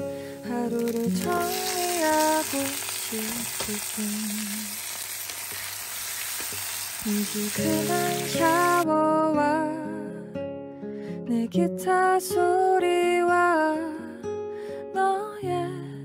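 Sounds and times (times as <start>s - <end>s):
background music: 0.0s - 4.8s, 7.0s - 11.9s
onions sizzling in hot oil: 0.0s - 8.8s.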